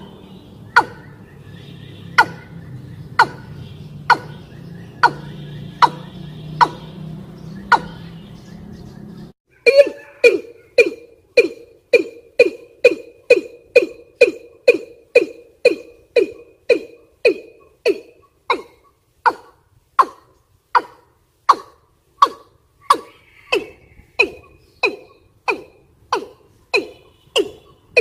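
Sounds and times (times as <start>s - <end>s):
bird call short sharp notes: 21.5s - 28.0s.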